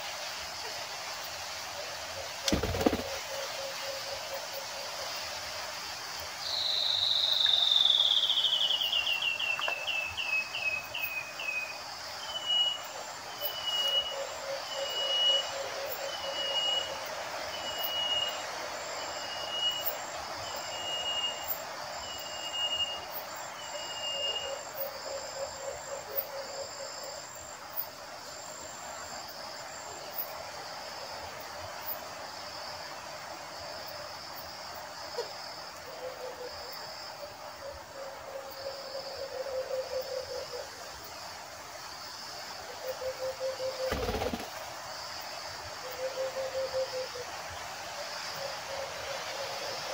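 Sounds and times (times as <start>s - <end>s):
insects chirring: 0.0s - 49.9s.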